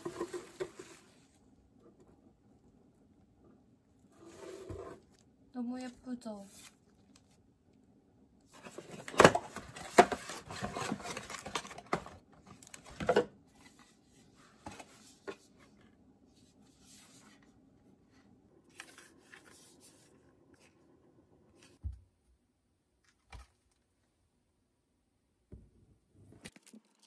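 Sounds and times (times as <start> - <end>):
packaging rustling and crinkling: 8.6 - 13.0.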